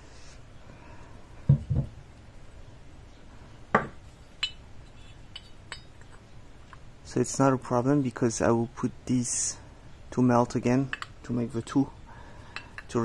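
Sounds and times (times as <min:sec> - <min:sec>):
dull knocks on wooden workbench: 0:01.5 - 0:01.9, 0:03.8 - 0:04.0
light metallic clinks: 0:04.4 - 0:06.9, 0:10.8 - 0:11.9.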